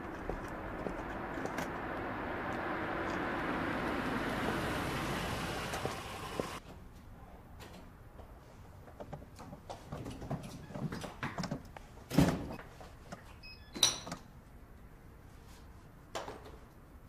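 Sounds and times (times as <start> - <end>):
taxi engine and tyre noise: 0.0 - 6.6.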